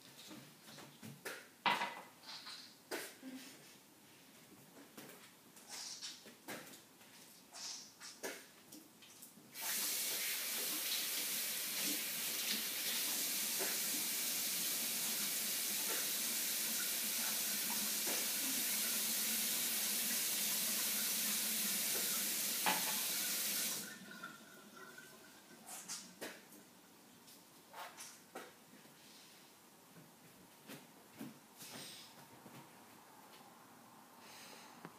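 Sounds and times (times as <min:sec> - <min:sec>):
tap running into sink: 0:21.9 - 0:23.8.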